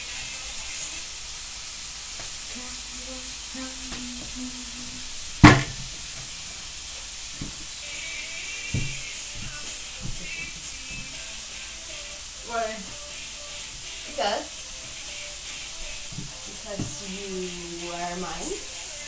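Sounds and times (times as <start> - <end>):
steady hiss: 0.0 - 19.0
sharp knock on counter: 5.4 - 5.8.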